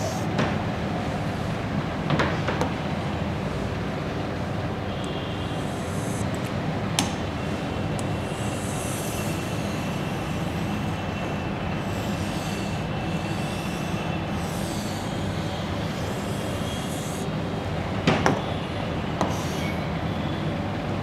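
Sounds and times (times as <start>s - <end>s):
room hum and hiss: 0.0s - 21.0s.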